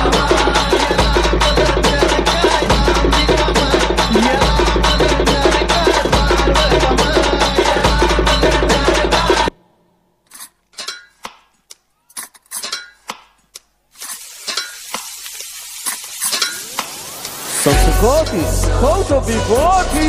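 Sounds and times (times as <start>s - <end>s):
music: 0.0s - 9.6s, 17.6s - 20.0s.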